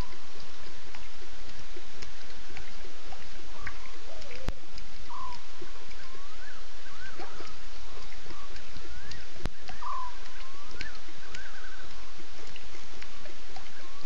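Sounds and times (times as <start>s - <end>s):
steady hiss: 0.0s - 14.0s
chirping calls gliding in pitch: 3.5s - 12.2s.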